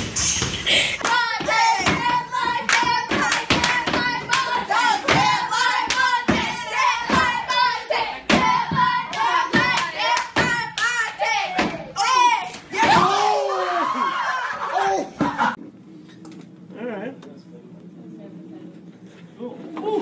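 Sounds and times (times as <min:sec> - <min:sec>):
hands clapping rhythmically: 0:01.0 - 0:07.4, 0:08.3 - 0:12.0.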